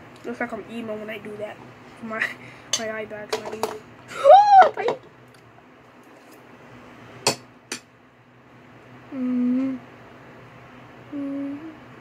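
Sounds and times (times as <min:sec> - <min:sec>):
closed-mouth hum: 0:09.0 - 0:10.1, 0:10.7 - 0:12.0.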